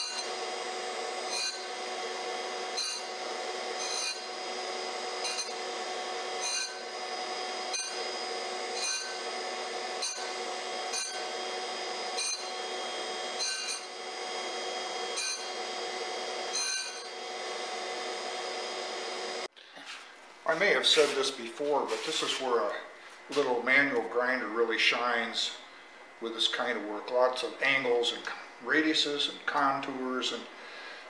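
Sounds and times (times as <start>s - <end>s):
surface grinder whine: 0.0s - 19.5s
diamond dresser scratching: 1.3s - 1.7s, 2.7s - 3.1s, 3.8s - 4.4s, 5.2s - 5.6s, 6.3s - 6.9s, 7.6s - 9.2s, 10.0s - 11.3s.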